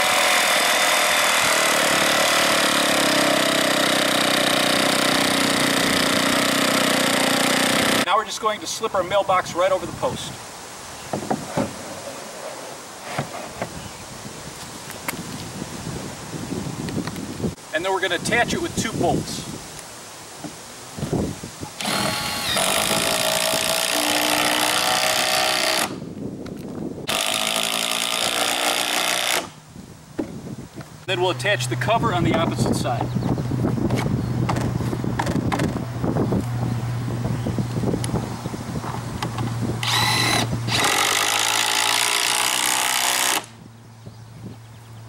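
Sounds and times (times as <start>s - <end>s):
impact driver whine and rattle: 0.0s - 8.1s, 21.8s - 26.0s, 27.1s - 29.6s, 33.8s - 36.5s, 38.8s - 43.6s
cordless drill driving fastener: 21.8s - 26.0s, 39.8s - 43.5s.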